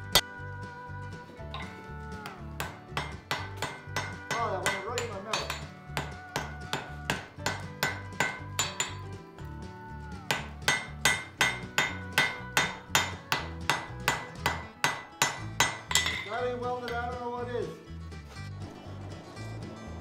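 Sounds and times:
hammer striking steel on anvil: 1.5s - 9.2s, 10.3s - 17.0s.

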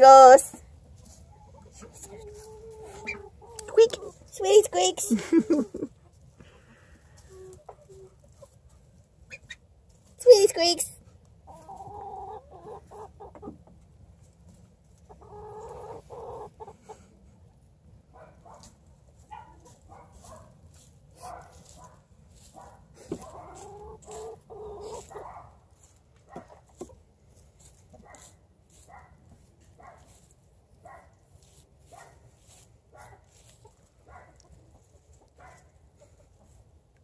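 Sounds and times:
straw rustling: 18.5s - 36.2s.

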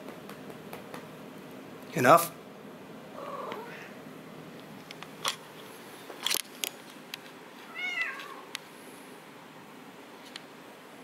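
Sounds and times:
cat trilling meow: 3.2s - 4.0s, 7.7s - 8.5s.

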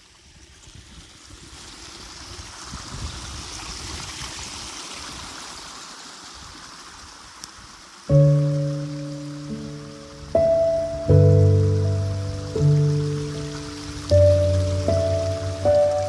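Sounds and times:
waterfall rushing: 4.2s - 16.0s.

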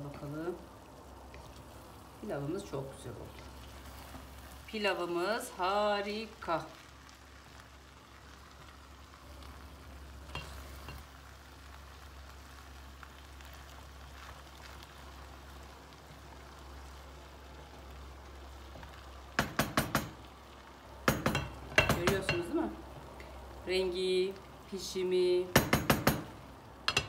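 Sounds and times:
spoon clacking against pan: 10.3s - 11.0s, 19.4s - 20.2s, 21.1s - 22.5s, 25.5s - 27.0s.

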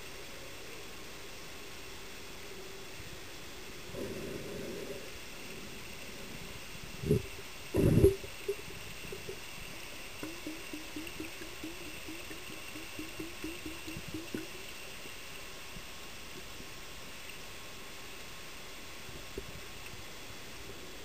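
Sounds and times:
steady underwater hiss: 0.0s - 21.0s
muffled low thumps: 7.1s - 9.4s, 10.2s - 14.6s.

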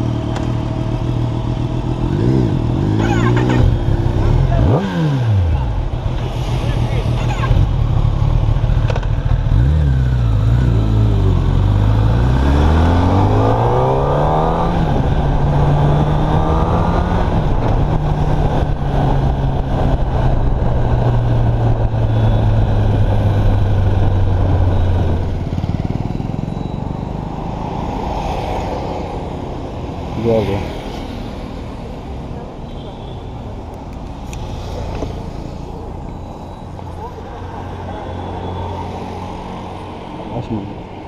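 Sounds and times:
motorcycle engine accelerating: 7.5s - 27.6s.

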